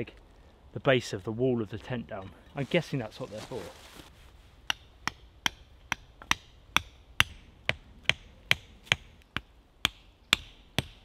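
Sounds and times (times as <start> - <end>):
tent stakes being hammered: 4.6 - 11.0.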